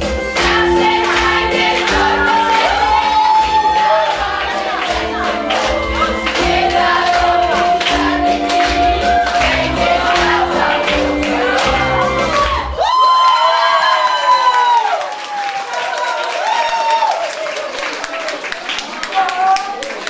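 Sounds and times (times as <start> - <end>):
steady beat accompaniment: 0.0 - 12.8
vocal group singing: 0.3 - 12.7.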